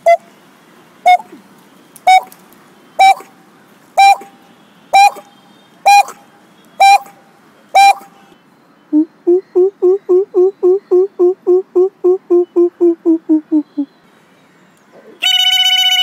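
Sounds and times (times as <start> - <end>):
man imitating bird call: 1.1 - 1.3, 2.1 - 2.3, 3.0 - 3.3, 4.0 - 4.4, 5.0 - 5.3, 5.9 - 6.2, 6.8 - 7.2, 7.8 - 8.1, 8.9 - 13.9.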